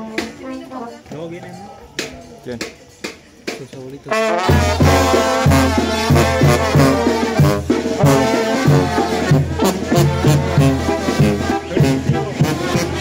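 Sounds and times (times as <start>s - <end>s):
brass band playing: 0.0s - 0.9s, 4.0s - 13.0s.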